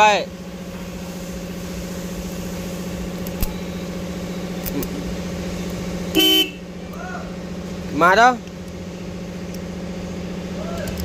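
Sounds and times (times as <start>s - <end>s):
engine idling: 0.0s - 11.0s
sharp click: 3.2s - 3.6s, 4.6s - 5.0s.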